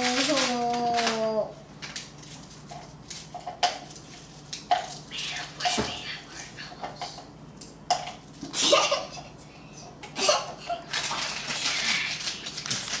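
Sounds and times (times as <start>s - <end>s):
paper bag crinkling and rustling: 0.0s - 5.2s, 10.2s - 13.0s
child laughing: 8.6s - 9.4s, 10.1s - 11.1s.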